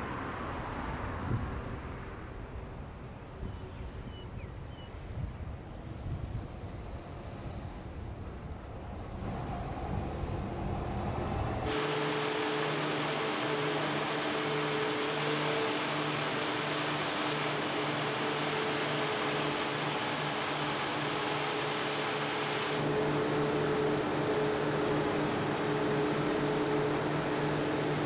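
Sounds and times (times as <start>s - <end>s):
low wind rumble: 0.0s - 28.0s
heavy truck engine running: 8.4s - 18.0s.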